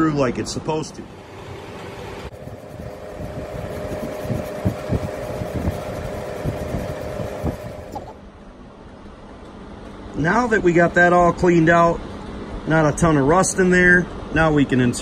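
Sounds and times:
steady machine hum: 0.0s - 15.0s
abrasive pad scrubbing metal: 2.3s - 8.0s.

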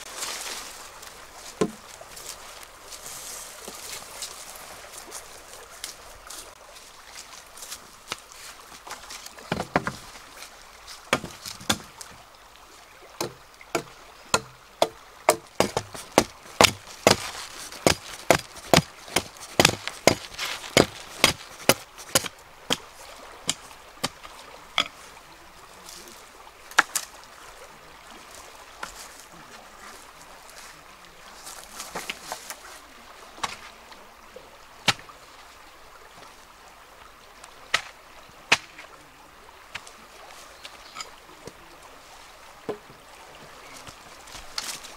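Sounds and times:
stream rushing: 0.0s - 44.9s
hatchet chopping bamboo: 1.6s - 1.8s, 9.5s - 10.0s, 11.1s - 12.0s, 13.2s - 22.9s, 38.5s - 38.8s.

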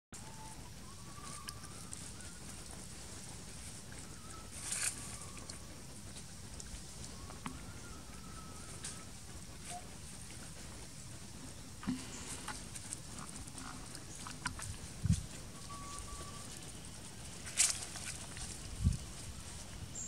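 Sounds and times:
faint whistled tones: 0.2s - 6.1s, 6.7s - 10.0s, 14.8s - 20.0s
steady low hiss: 0.2s - 20.0s
short rustle: 11.8s - 20.0s.

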